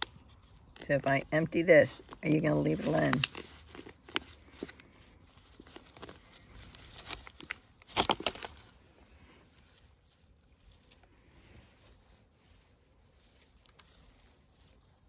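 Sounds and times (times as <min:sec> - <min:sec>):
plastic plant pots clattering: 0:00.0 - 0:09.4.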